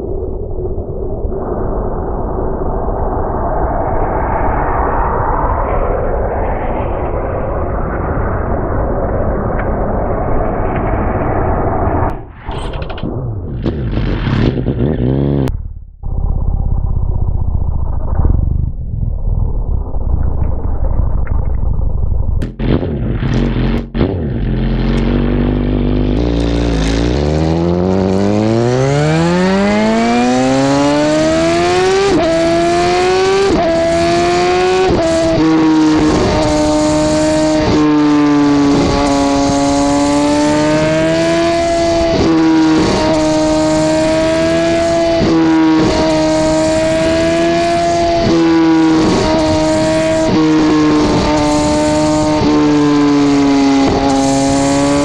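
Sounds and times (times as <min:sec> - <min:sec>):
motorcycle engine revving: 0:12.5 - 0:55.0.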